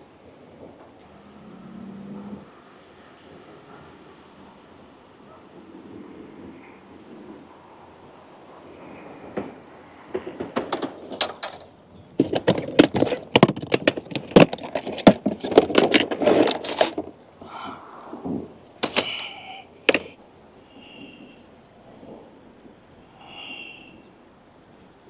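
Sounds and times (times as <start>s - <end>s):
fishing tackle rattling in a box: 10.2s - 17.2s, 18.2s - 20.2s.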